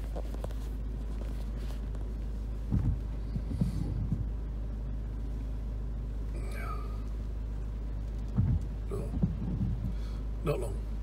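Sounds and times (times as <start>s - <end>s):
car engine idling: 0.0s - 11.0s
dull knocks: 2.7s - 4.3s, 8.3s - 10.1s.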